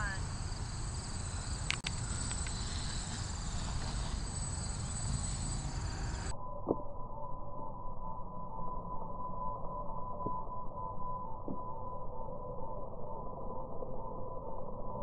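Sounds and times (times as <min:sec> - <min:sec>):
drone motors whining: 0:00.0 - 0:06.4
steady high tone: 0:00.0 - 0:10.0.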